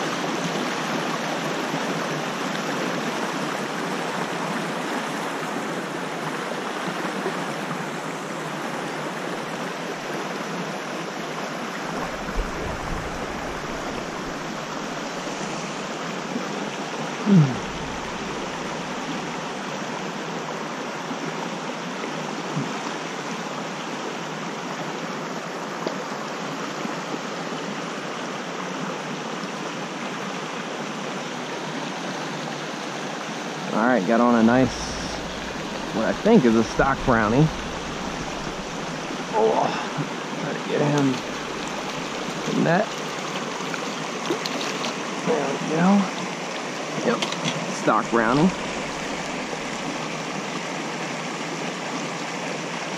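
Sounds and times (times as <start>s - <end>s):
creek rushing over rocks: 0.0s - 52.9s.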